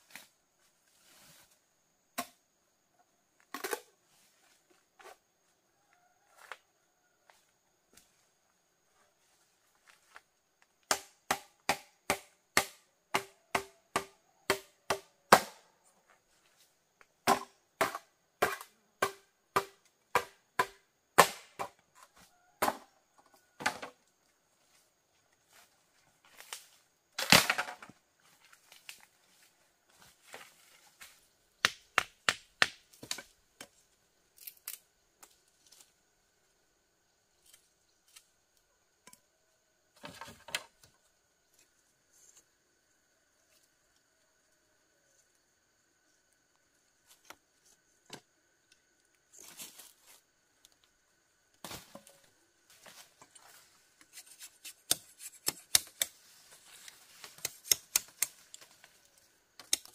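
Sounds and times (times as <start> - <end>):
blade chopping bamboo: 17.3 - 21.8, 54.6 - 56.2, 57.4 - 58.4
bamboo cracking: 26.4 - 27.9, 31.6 - 35.9, 54.0 - 59.9.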